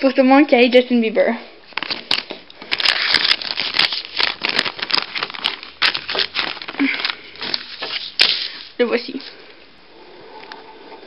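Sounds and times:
paper rustling and crinkling: 0:01.7 - 0:09.4.

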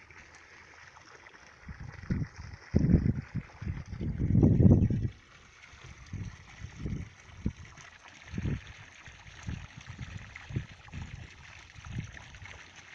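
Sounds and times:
wind buffeting microphone: 0:01.6 - 0:05.2, 0:05.8 - 0:12.4.

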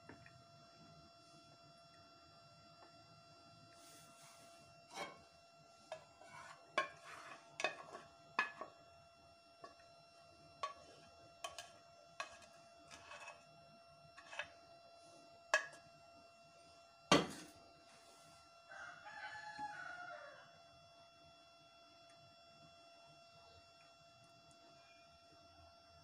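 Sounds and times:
rooster crowing: 0:18.6 - 0:20.7.

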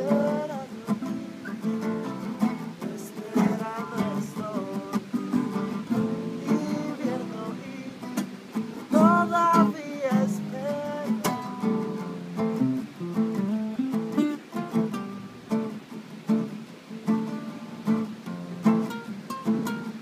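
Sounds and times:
strummed acoustic guitar chords: 0:00.0 - 0:20.0.

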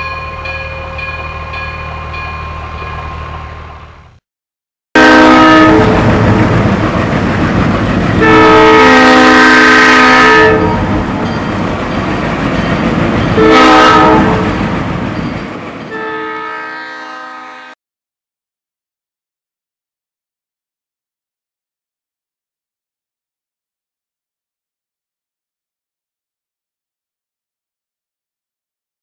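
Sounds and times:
moving train rumble: 0:00.0 - 0:04.2, 0:05.0 - 0:17.8
train air horn blasts: 0:05.0 - 0:06.4, 0:08.2 - 0:10.9, 0:13.4 - 0:14.5, 0:15.9 - 0:17.8.

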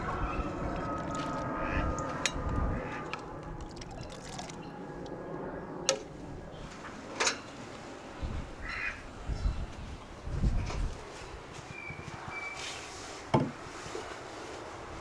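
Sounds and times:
liquid splashing and dripping: 0:02.9 - 0:05.2.

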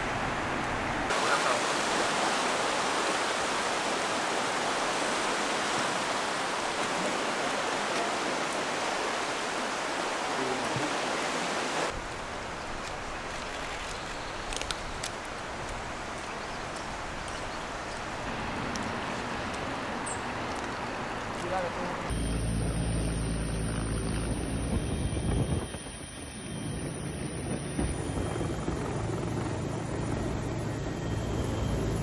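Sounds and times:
outdoor background noise: 0:00.0 - 0:32.0
fast-flowing river roaring: 0:01.1 - 0:12.0.

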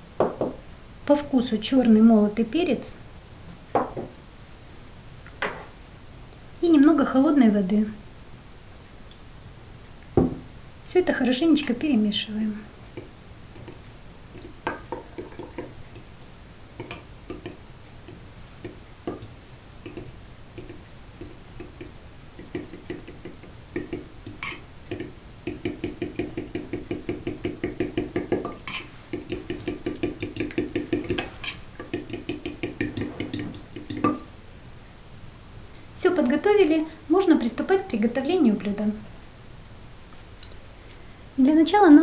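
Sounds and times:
spoon beating sauce rhythmically: 0:12.9 - 0:34.3
spoon scraping and clinking glass bowl: 0:24.4 - 0:24.6, 0:28.5 - 0:28.9, 0:31.1 - 0:31.6.

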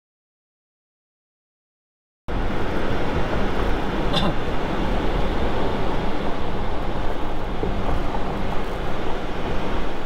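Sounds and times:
car cabin road rumble: 0:02.3 - 0:10.0.

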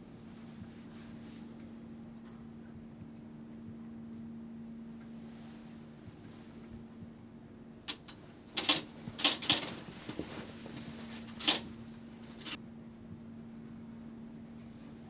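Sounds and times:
low electrical hum: 0:00.0 - 0:15.0
typewriter keys clacking: 0:07.9 - 0:09.8, 0:11.2 - 0:11.7, 0:12.3 - 0:12.6.

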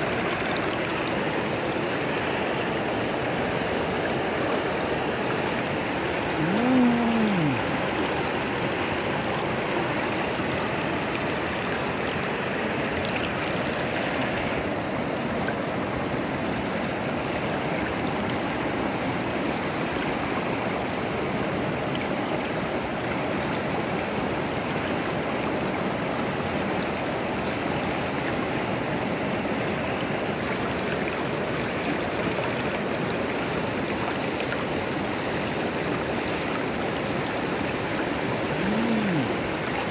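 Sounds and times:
river rushing over rocks: 0:00.0 - 0:39.9
man humming: 0:06.3 - 0:07.8, 0:38.5 - 0:39.5.

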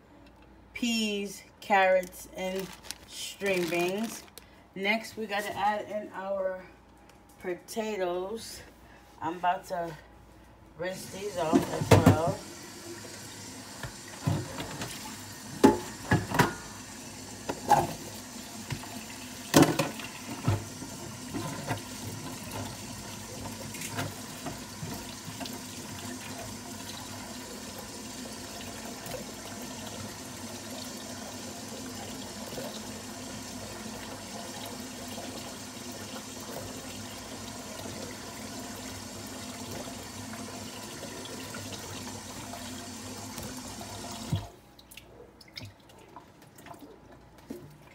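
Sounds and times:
kitchen tap running: 0:11.0 - 0:44.5.

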